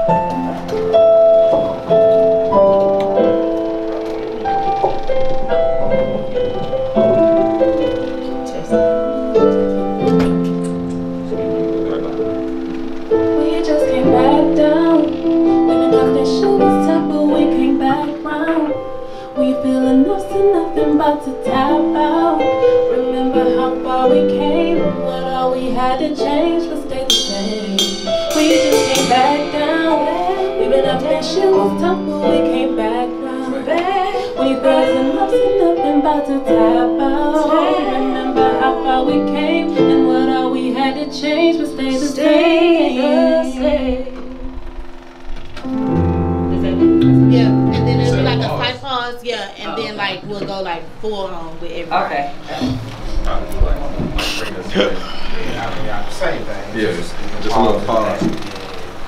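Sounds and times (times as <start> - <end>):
keyboard chords: 0.0 - 55.0
woman singing: 13.4 - 44.4, 46.6 - 52.0.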